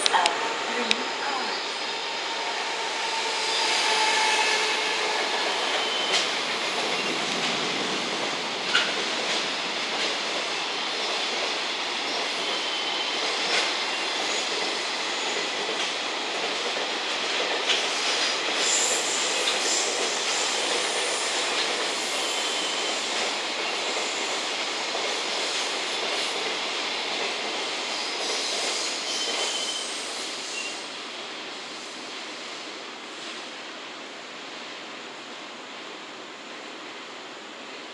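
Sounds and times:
high wheel squeals: 0:00.5 - 0:07.2, 0:29.0 - 0:30.8.

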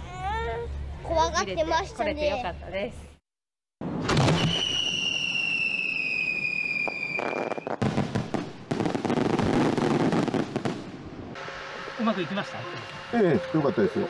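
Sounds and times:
fireworks crackling and snapping: 0:04.0 - 0:11.0
firework whistle: 0:04.1 - 0:07.8.

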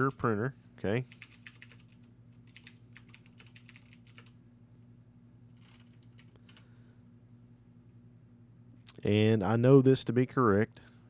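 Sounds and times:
low steady hum: 0:00.0 - 0:11.0
typing on computer keyboard: 0:01.2 - 0:04.4, 0:05.6 - 0:06.6.

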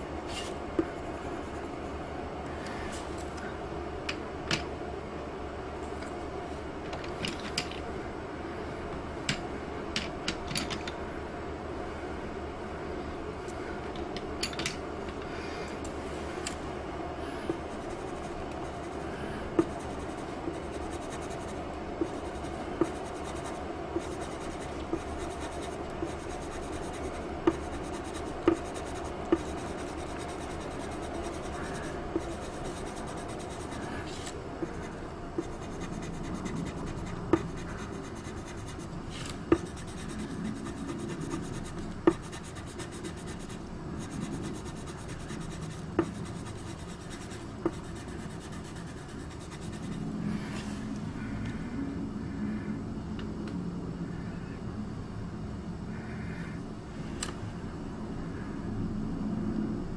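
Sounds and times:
pencil scratching on paper: 0:17.5 - 0:38.9, 0:39.5 - 0:50.0.

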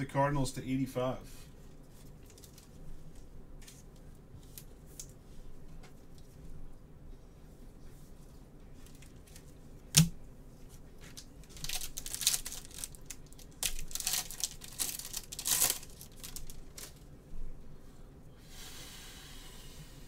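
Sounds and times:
plastic wrapper tearing and crinkling: 0:01.9 - 0:02.8, 0:11.1 - 0:17.1.

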